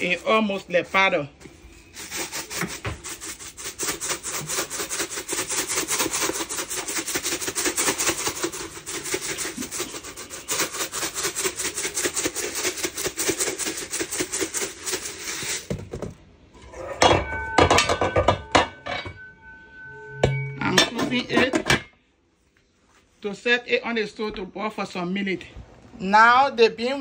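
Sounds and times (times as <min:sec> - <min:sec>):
spice shaker rattling: 0:02.0 - 0:15.8
sharp metallic clink: 0:16.8 - 0:21.2.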